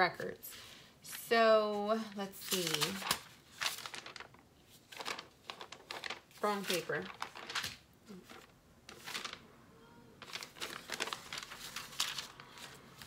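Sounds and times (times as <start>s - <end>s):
paper sheets rustling: 1.7s - 9.5s, 10.2s - 13.0s.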